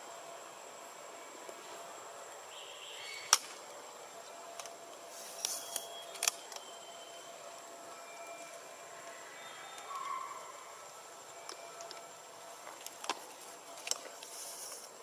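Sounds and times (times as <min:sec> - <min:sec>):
faint steady high tone: 0:00.0 - 0:15.0
outdoor background hiss: 0:00.0 - 0:15.0
sharp clicks: 0:05.4 - 0:06.7.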